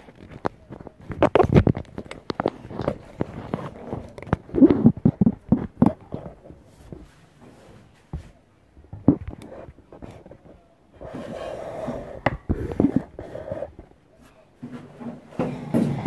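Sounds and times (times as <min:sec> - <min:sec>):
phone rubbing against microphone: 0:02.4 - 0:08.0, 0:09.0 - 0:14.0.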